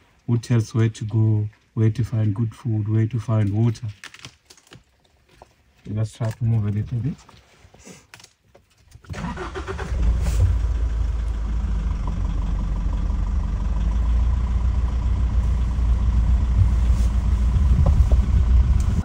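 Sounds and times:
vehicle engine and road rumble: 8.9s - 19.0s.

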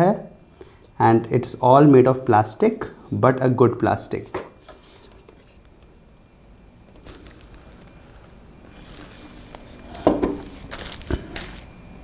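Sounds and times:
plastic bin bump: 10.0s - 11.3s.

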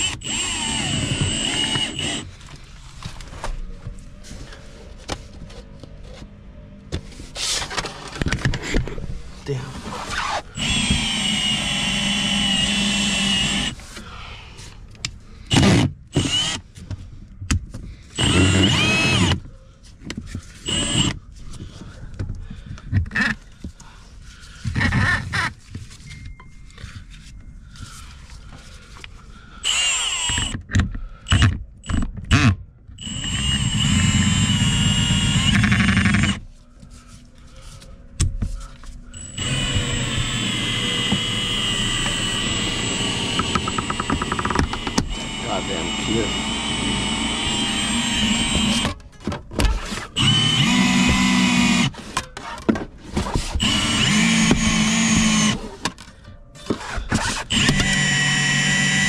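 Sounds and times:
power tool motor whining: 0.0s - 2.3s, 10.1s - 13.8s, 15.5s - 16.6s, 18.2s - 19.4s, 20.6s - 21.2s, 29.6s - 30.6s, 31.3s - 36.4s, 39.2s - 49.0s, 49.8s - 52.0s, 53.6s - 55.6s, 56.7s - 59.0s.

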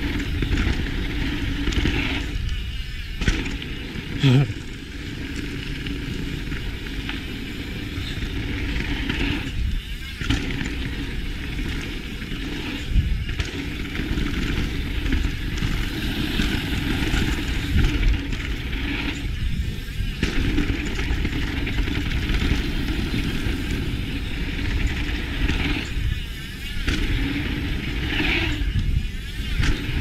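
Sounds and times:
bike thumping on ground: 0.0s - 3.9s, 10.1s - 28.5s, 29.3s - 30.0s
bike tyre rumble on dirt: 0.0s - 30.0s
wind noise: 0.0s - 30.0s.

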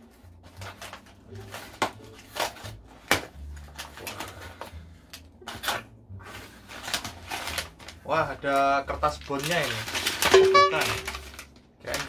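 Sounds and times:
paper packing rustling: 0.0s - 12.0s.

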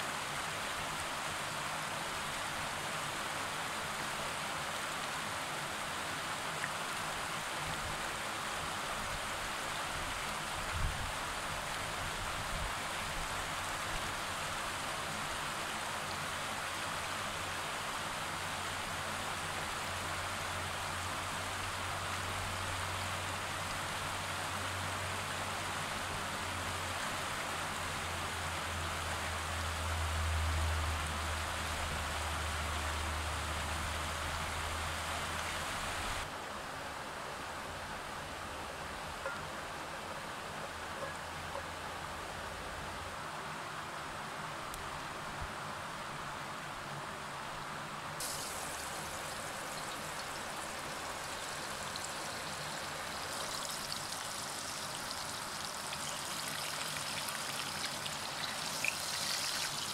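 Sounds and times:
river rushing over rocks: 48.3s - 59.9s.

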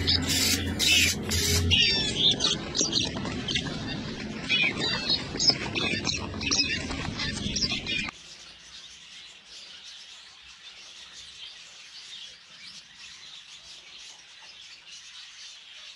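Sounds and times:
zebra finches chirping: 0.0s - 15.9s.

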